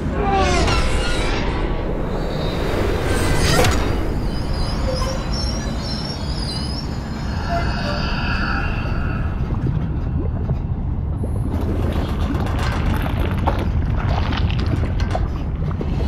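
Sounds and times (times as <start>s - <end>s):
high wheel squeal: 0.3s - 9.6s.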